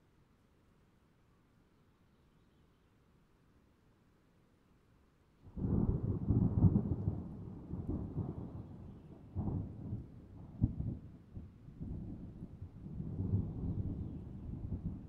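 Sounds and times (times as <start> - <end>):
thunder rumbling: 5.6 - 15.0.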